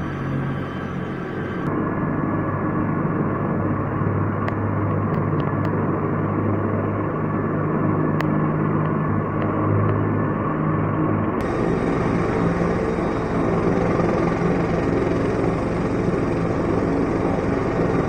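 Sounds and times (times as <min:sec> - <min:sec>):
helicopter turbine and rotor drone: 0:00.0 - 0:18.0.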